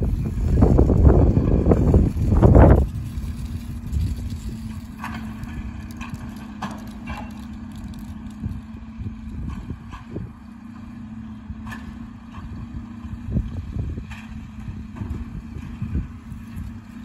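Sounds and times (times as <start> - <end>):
distant truck engine hum: 0.0 - 17.0.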